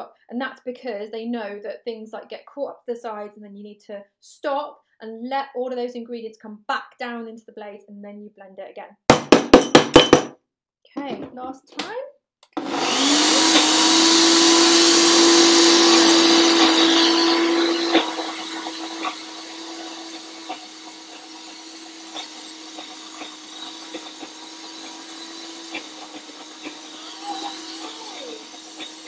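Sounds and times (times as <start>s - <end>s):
blender motor running: 12.5s - 29.0s.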